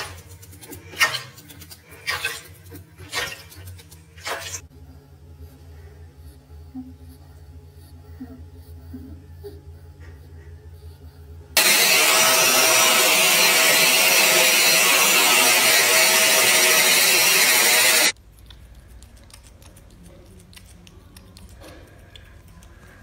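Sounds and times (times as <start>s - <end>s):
hair dryer blowing: 11.6s - 18.1s
cat licking clicks: 18.3s - 23.0s.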